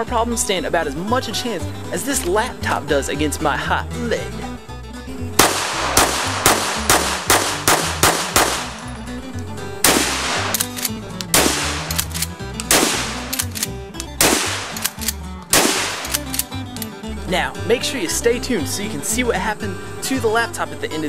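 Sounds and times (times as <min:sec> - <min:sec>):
background music with bass line: 0:00.0 - 0:21.0
rapid handgun fire: 0:05.4 - 0:08.9, 0:09.8 - 0:16.5
shotgun shots: 0:05.4 - 0:08.9, 0:09.8 - 0:16.5.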